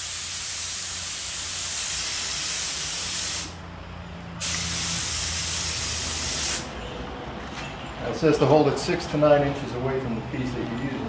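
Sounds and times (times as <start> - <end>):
spray gun hissing: 0.0 - 3.6, 4.4 - 6.7.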